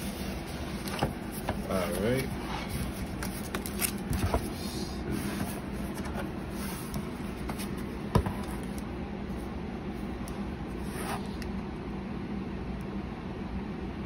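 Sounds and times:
low background hum: 0.0s - 14.0s
cardboard rustling and tapping: 0.1s - 4.6s, 5.2s - 8.9s.

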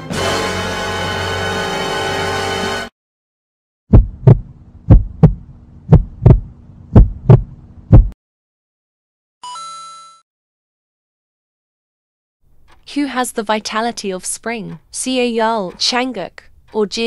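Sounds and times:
low steady hum: 3.9s - 8.1s
heartbeat thumps: 3.9s - 8.2s.

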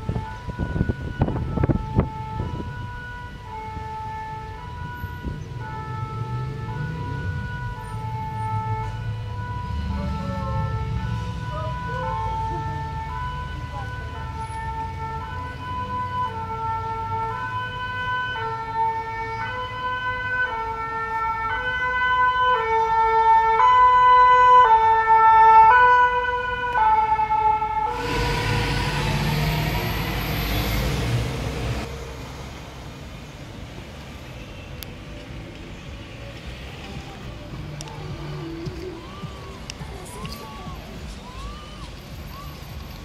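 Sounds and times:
two-tone fire siren: 0.0s - 32.0s
faint street traffic: 0.0s - 43.0s
loud rushing noise: 27.9s - 32.6s.

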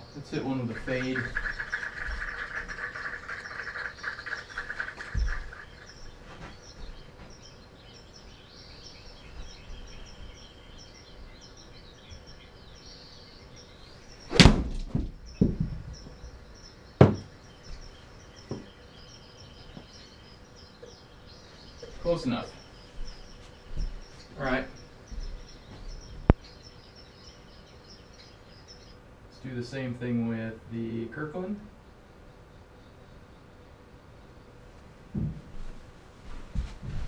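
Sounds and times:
golf club striking ball: 14.3s - 14.9s
ball smacking into screen: 14.3s - 15.1s
sharp knocks: 14.3s - 15.9s, 17.0s - 17.3s, 35.2s - 35.5s.

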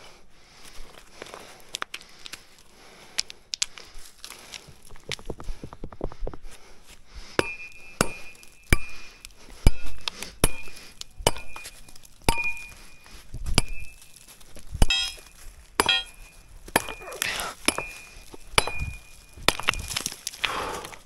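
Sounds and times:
metal tool clinking on stony ground: 7.4s - 20.4s.

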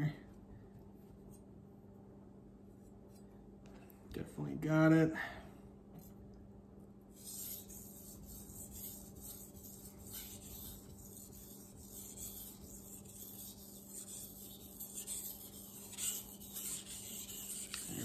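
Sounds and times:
knife scraping on water stone: 7.2s - 18.0s.

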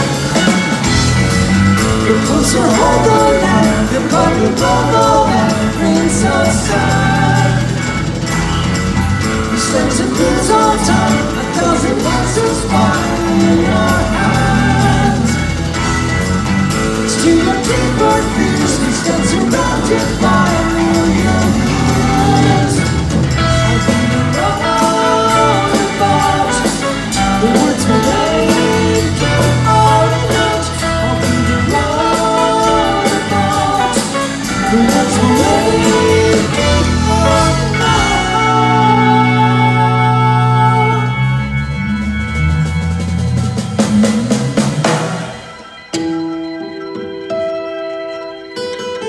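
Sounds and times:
drums and cymbals: 0.0s - 46.3s
bass guitar: 0.0s - 49.0s
electric guitar: 0.0s - 49.0s
keyboards: 0.0s - 49.0s
person singing: 1.8s - 8.1s, 9.4s - 15.7s, 16.9s - 41.9s.

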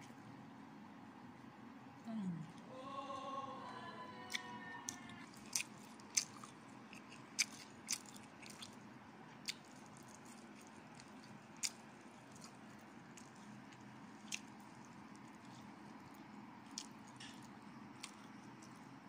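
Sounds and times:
chewing and crunching food: 4.2s - 19.0s.

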